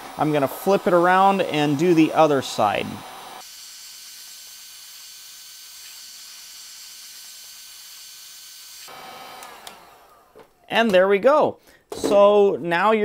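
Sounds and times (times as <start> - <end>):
heat gun hissing: 0.0 - 10.4.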